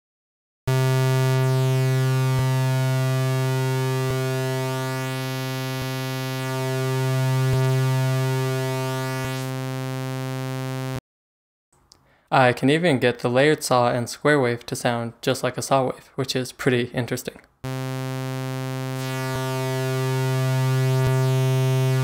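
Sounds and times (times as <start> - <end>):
low buzzy synth note: 0.7 - 11.0, 17.6 - 22.0.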